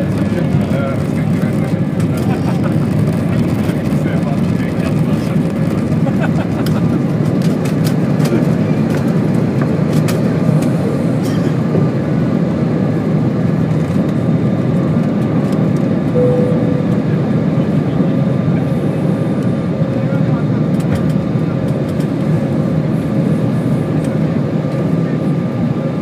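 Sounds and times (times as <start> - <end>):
jet engines roaring: 0.0 - 26.0.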